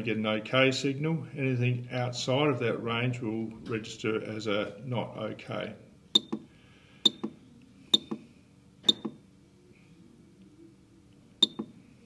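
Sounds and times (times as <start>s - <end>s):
keypad button clicks: 6.2s - 6.5s, 7.1s - 7.4s, 8.0s - 8.2s, 8.9s - 9.2s, 11.4s - 11.8s.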